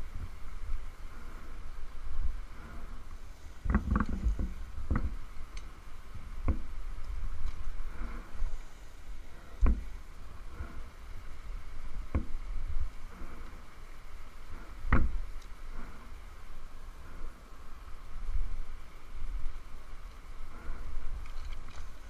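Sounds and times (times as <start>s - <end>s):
climbing gear rubbing and bumping: 0.0s - 17.6s
sharp knocks on tree trunk: 6.4s - 6.7s, 9.6s - 9.9s, 12.1s - 12.4s, 14.9s - 15.2s.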